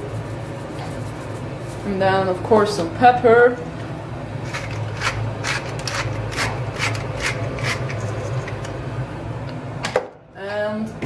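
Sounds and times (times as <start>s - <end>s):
low steady hum: 0.0s - 11.0s
pepper mill grinding: 4.4s - 8.8s.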